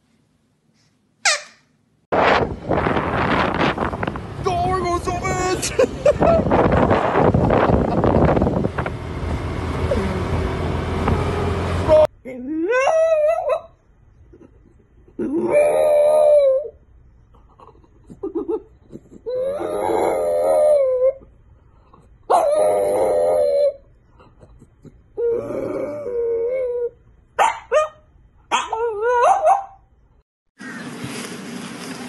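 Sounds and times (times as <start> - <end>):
dog yipping: 1.2 - 1.7, 12.7 - 13.7, 22.3 - 23.8, 27.4 - 29.8
wind noise: 2.1 - 11.3
street traffic: 2.2 - 12.1
dog howling: 15.3 - 16.8, 19.3 - 21.2, 22.3 - 23.8.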